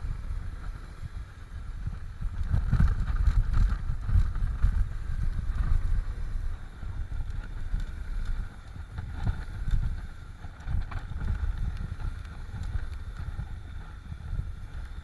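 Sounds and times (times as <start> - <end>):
bike rattling over bumps: 0.0 - 15.0
wind buffeting microphone: 0.0 - 15.0.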